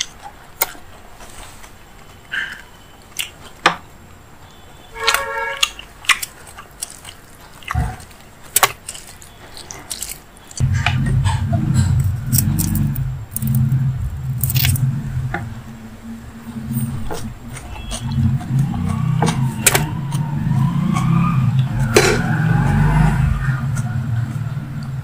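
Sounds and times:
wet eating clicks and smacks: 0:02.5 - 0:03.6, 0:05.1 - 0:10.6
loud low rumble: 0:10.6 - 0:25.0.

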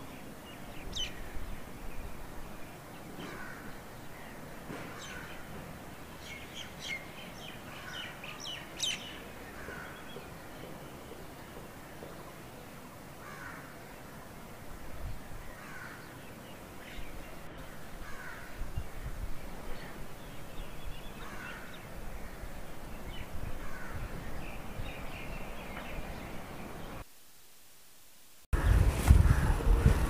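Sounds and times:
low background noise: 0:00.0 - 0:30.0
crows cawing: 0:03.2 - 0:03.7, 0:09.5 - 0:10.1, 0:13.2 - 0:13.8, 0:15.5 - 0:16.1, 0:18.0 - 0:18.6, 0:21.2 - 0:21.8, 0:23.6 - 0:24.1.

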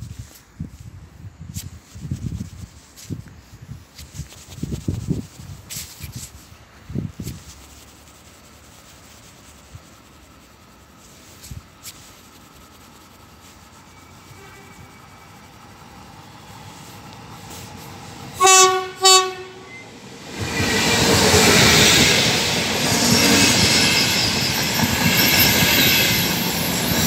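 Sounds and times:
high-speed train running noise: 0:09.7 - 0:27.0
train horn blasts: 0:14.2 - 0:15.2, 0:18.3 - 0:19.9.

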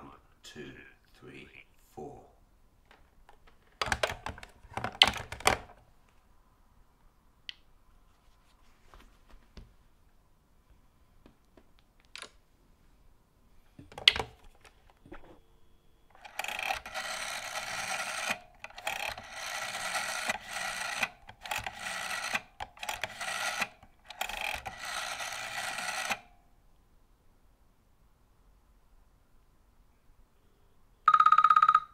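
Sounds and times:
rotary dial whirring: 0:16.1 - 0:26.3
telephone handset click: 0:16.2 - 0:26.3.

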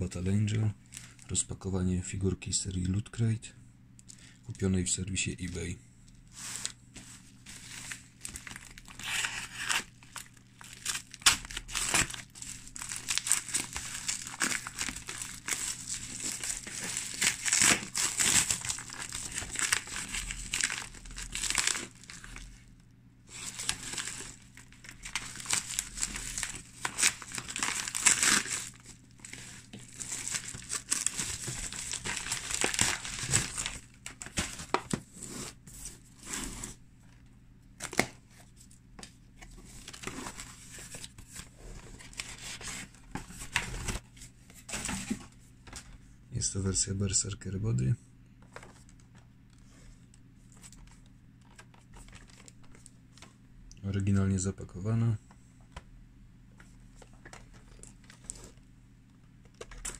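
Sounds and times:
cardboard tearing and crinkling: 0:07.4 - 0:22.5, 0:23.3 - 0:35.6, 0:39.7 - 0:44.0, 0:59.5 - 0:59.9.

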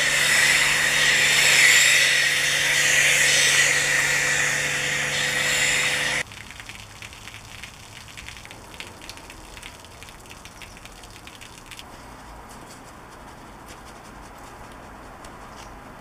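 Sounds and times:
brush scrubbing foam: 0:00.0 - 0:06.2, 0:11.6 - 0:16.0
foam fizzing and crackling: 0:00.0 - 0:11.9.

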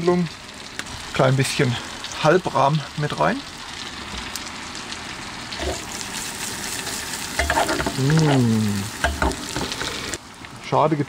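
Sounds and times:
food sizzling in a pan: 0:00.0 - 0:11.0
person's voice: 0:08.0 - 0:08.9.

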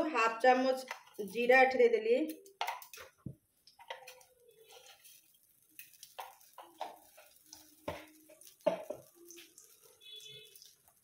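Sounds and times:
containers and utensils clicking: 0:02.3 - 0:09.9.

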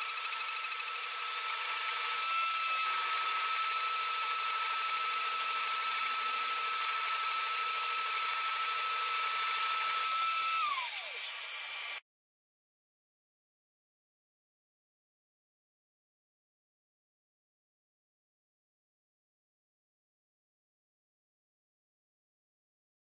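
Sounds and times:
machine spindle high whine: 0:00.0 - 0:12.0.

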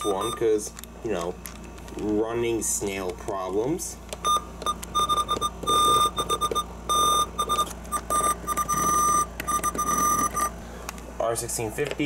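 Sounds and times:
electronic alert beeps: 0:00.0 - 0:00.4, 0:04.2 - 0:10.6.

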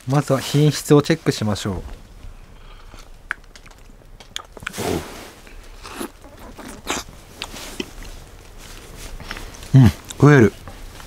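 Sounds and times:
person eating: 0:02.3 - 0:11.0.

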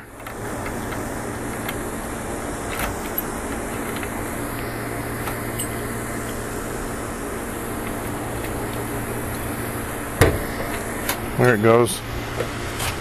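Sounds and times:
mechanical hum: 0:00.0 - 0:13.0.

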